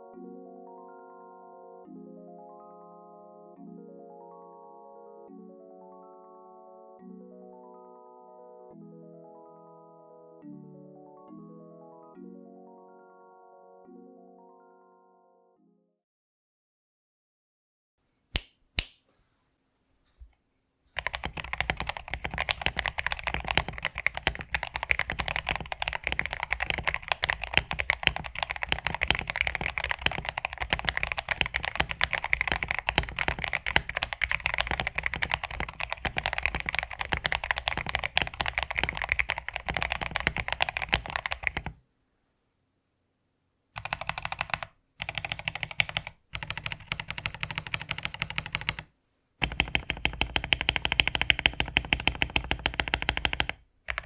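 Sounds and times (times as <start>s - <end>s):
fast typing on mechanical keyboard: 21.0s - 41.8s, 43.8s - 54.0s.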